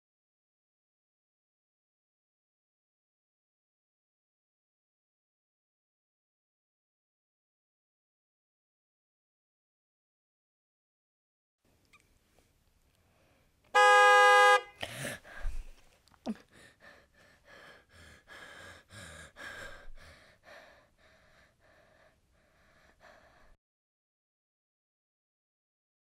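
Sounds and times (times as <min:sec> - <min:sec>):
car horn honking: 0:13.7 - 0:14.8.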